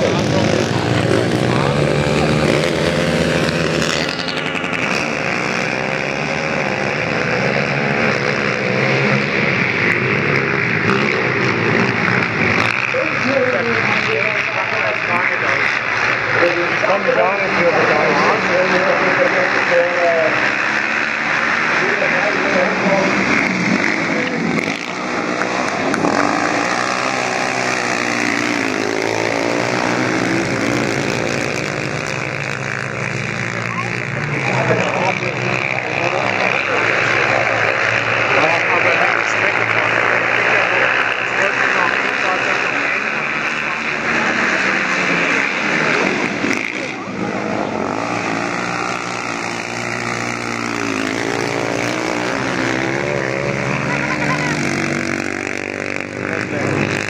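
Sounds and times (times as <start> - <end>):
quad engines revving: 0.0 - 57.0.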